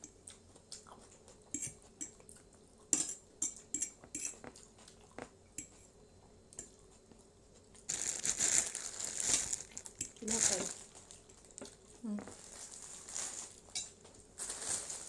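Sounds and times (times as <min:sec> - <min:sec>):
cutlery clicking on plates: 0:02.9 - 0:04.4.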